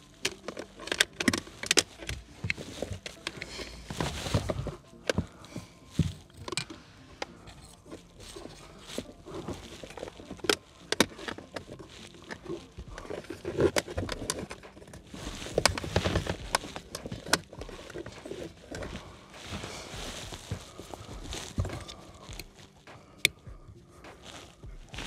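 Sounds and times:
plastic hose rustle: 0:00.0 - 0:25.0
handling clicks and taps: 0:00.2 - 0:08.1, 0:09.6 - 0:19.6.

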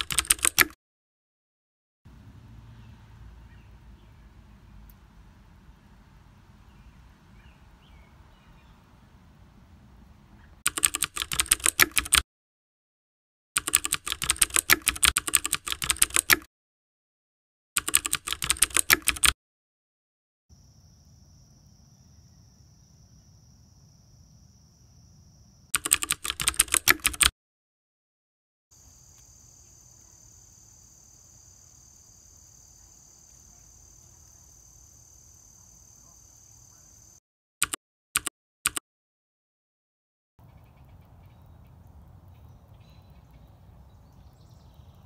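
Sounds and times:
computer keyboard typing: 0:00.0 - 0:00.8, 0:10.7 - 0:12.2, 0:13.6 - 0:16.5, 0:17.8 - 0:19.4, 0:25.8 - 0:27.3, 0:37.6 - 0:38.8
insects droning: 0:20.5 - 0:25.7, 0:28.8 - 0:37.2.

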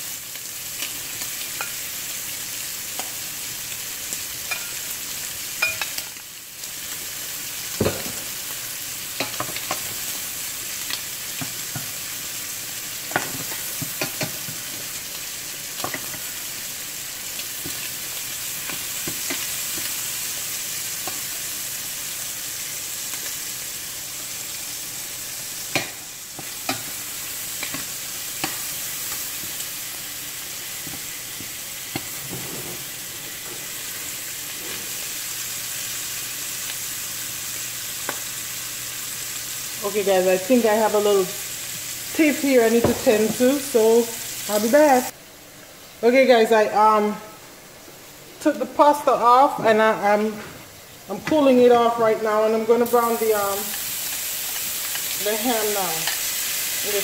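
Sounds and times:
shrimp sizzling in oil: 0:00.0 - 0:57.0
metal tongs tapping pan: 0:04.5 - 0:04.8, 0:05.6 - 0:06.1, 0:25.7 - 0:27.0.

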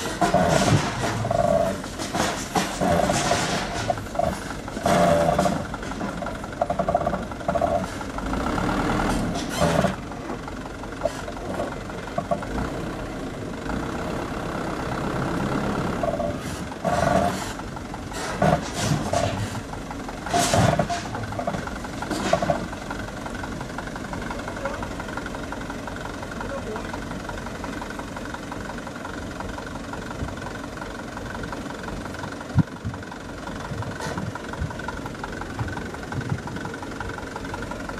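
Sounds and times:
gravel unloading: 0:00.0 - 0:08.2
diesel truck engine running: 0:00.0 - 0:37.9.

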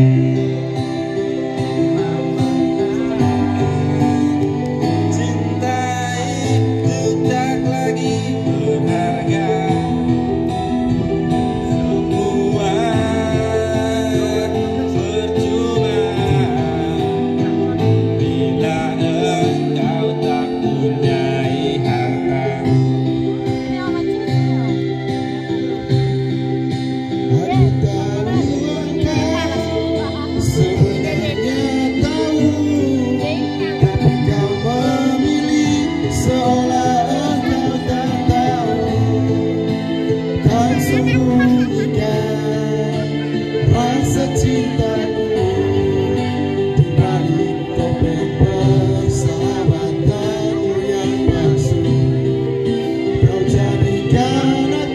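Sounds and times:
men singing into microphones: 0:00.0 - 0:23.9, 0:27.2 - 0:54.9
amplified guitar music: 0:00.0 - 0:54.9.

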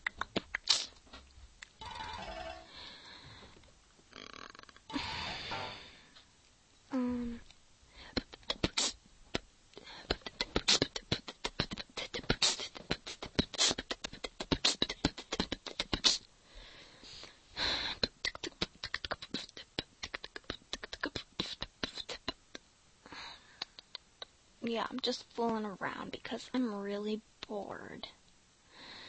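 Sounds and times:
beatbox hissing: 0:00.0 - 0:01.0, 0:08.1 - 0:09.5, 0:10.1 - 0:16.3, 0:17.8 - 0:22.7
girl beatboxing: 0:00.0 - 0:01.0, 0:06.9 - 0:16.3, 0:17.6 - 0:22.7, 0:23.6 - 0:28.1.

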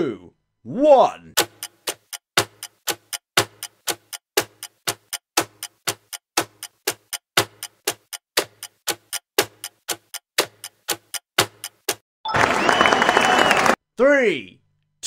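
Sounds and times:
clock-like timer ticking: 0:01.3 - 0:12.0.

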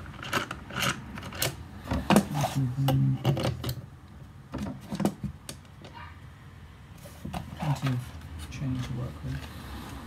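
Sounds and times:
scraping and rubbing: 0:00.0 - 0:03.7.

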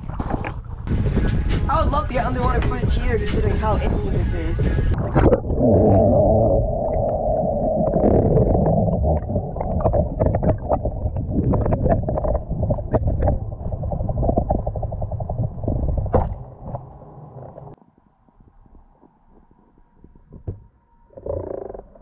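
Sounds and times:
underwater rumble of moving water: 0:00.0 - 0:22.0
bubbles clicking and crackling: 0:04.9 - 0:16.9.

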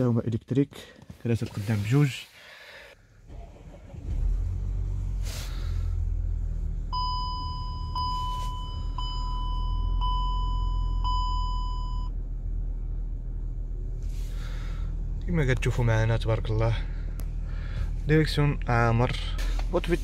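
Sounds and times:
diesel engine idling: 0:03.0 - 0:20.0
dashboard warning chime: 0:06.9 - 0:12.1.

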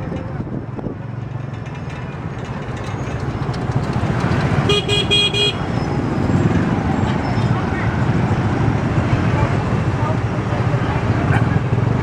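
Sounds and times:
road rumble: 0:00.0 - 0:12.0
motorcycle engine running: 0:00.1 - 0:12.0
vehicle horn beeps: 0:04.7 - 0:05.8.

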